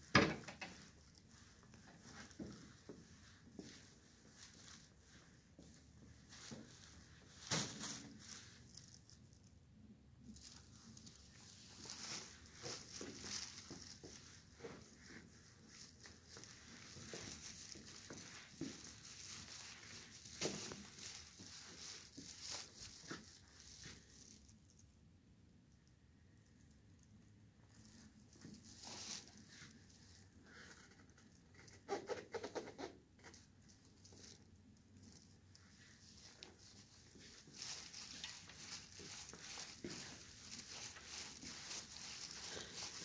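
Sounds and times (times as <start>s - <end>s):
handling noise rustling and taps: 0.0s - 4.8s, 10.4s - 24.4s, 33.2s - 43.0s.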